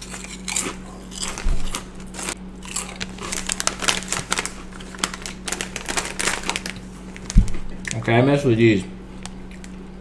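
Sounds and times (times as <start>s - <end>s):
crunching chips: 0.0s - 8.1s
plastic bag crinkling: 2.2s - 8.0s.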